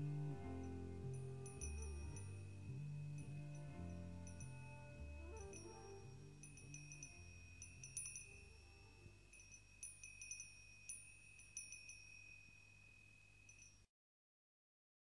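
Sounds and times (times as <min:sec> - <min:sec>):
low sustained music notes: 0:00.0 - 0:09.9
wind chimes ringing: 0:00.0 - 0:13.8.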